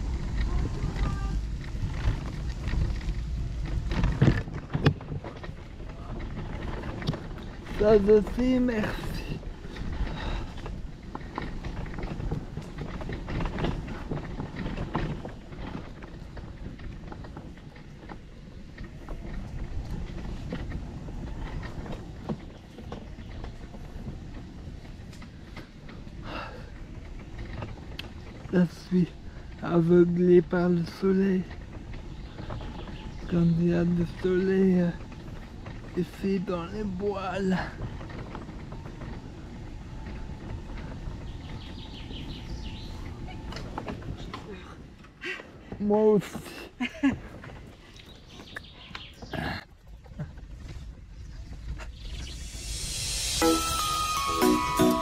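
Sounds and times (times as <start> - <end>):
wheelchair wheels rolling on gravel: 0.0 - 55.0
bird chirping: 41.2 - 43.3, 51.1 - 55.0.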